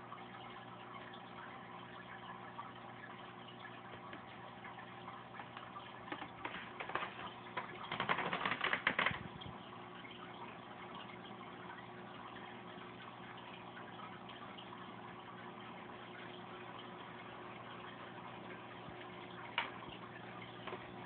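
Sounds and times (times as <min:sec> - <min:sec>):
aquarium pump hum: 0:00.0 - 0:21.0
water trickling and bubbling: 0:00.0 - 0:21.0
rapid clicking: 0:06.2 - 0:09.2.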